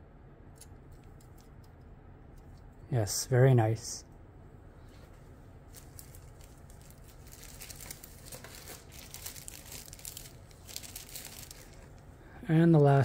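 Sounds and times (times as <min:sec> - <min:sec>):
plastic packaging crinkling: 0:05.7 - 0:12.1.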